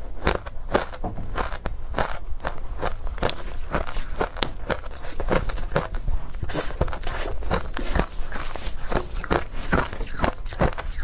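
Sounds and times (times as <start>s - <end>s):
ice crunching while chewed: 0.0s - 11.0s.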